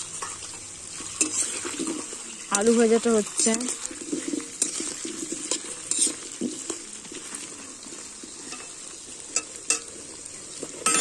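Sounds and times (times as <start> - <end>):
metal spatula scraping pan: 0.0 - 9.9, 10.7 - 11.0
potatoes sizzling in hot oil: 0.0 - 11.0.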